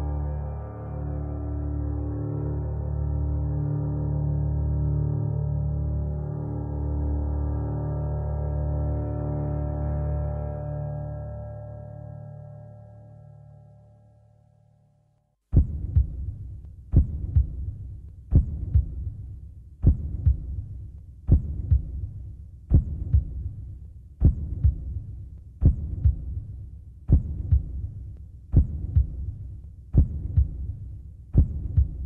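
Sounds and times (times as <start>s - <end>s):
heartbeat thumps: 15.5s - 19.2s, 19.8s - 23.6s, 24.2s - 32.0s.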